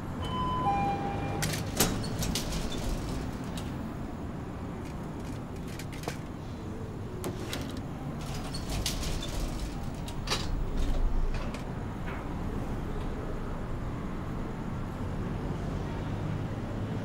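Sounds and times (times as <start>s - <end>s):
lift sliding doors shutting: 0.0s - 4.2s, 7.0s - 13.4s.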